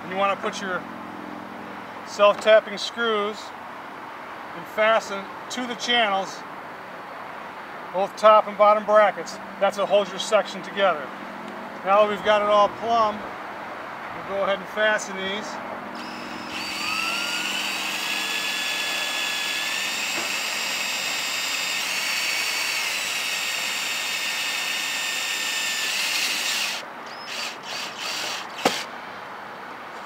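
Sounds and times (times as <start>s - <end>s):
cordless drill motor whining: 16.0s - 28.9s.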